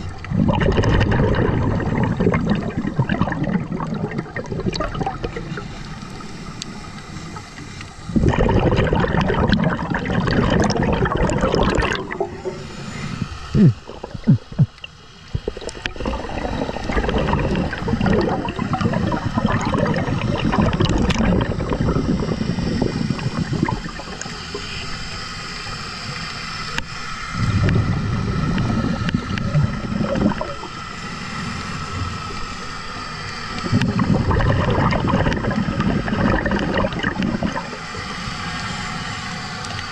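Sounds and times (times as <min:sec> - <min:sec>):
diver exhaling bubbles: 0:00.0 - 0:05.7, 0:08.1 - 0:24.7, 0:27.4 - 0:30.7, 0:33.5 - 0:38.2
regulator hiss and gurgling: 0:00.0 - 0:39.9.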